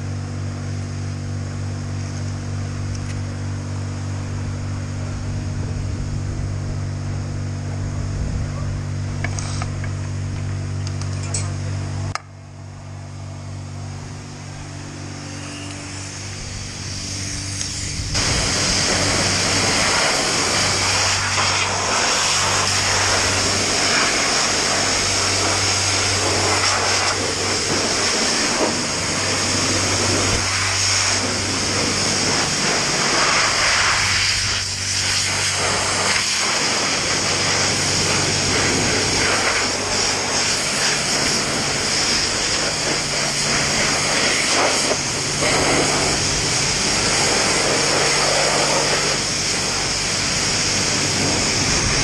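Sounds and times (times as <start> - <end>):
pressure pump humming: 0.0 - 52.0
pressure-washer jet hissing on metal: 14.8 - 52.0.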